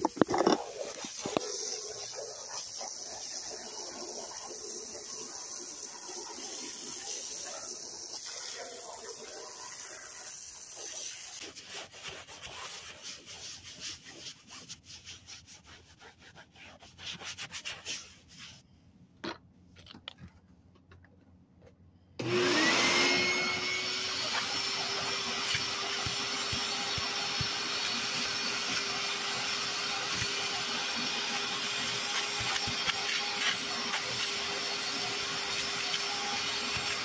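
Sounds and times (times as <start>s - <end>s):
scratchy rubbing strokes: 0.0s - 18.8s, 23.2s - 37.0s
shop vac motor whine: 22.2s - 37.0s.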